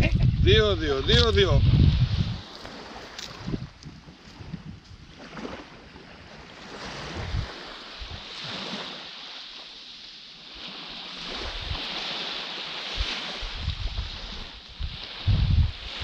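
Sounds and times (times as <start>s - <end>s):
wind buffeting microphone: 0.0s - 8.4s, 11.3s - 12.0s, 12.9s - 16.0s
small waves washing onto beach: 0.0s - 16.0s.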